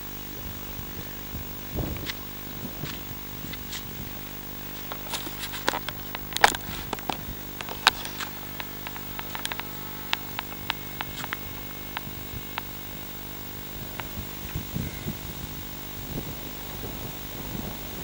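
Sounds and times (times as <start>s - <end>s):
motor humming: 0.0s - 18.0s
sharp clicks and crackles: 1.8s - 14.7s.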